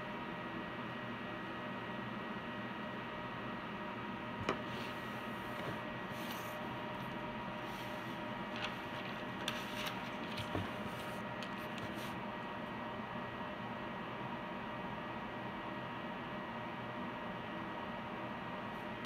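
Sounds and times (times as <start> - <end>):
steady hiss and hum: 4.1 - 12.9.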